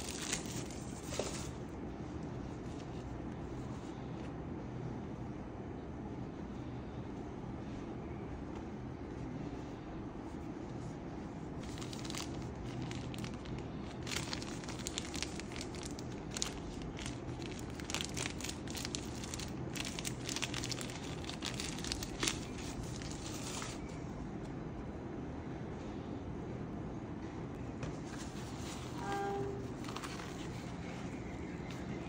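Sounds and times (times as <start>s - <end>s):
packaging crinkling and tearing: 0.0s - 1.6s, 11.6s - 24.0s.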